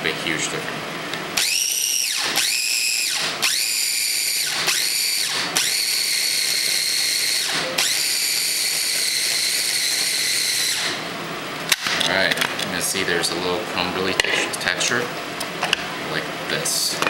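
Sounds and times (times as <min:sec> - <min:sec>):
food processor motor whining: 0:01.2 - 0:11.1.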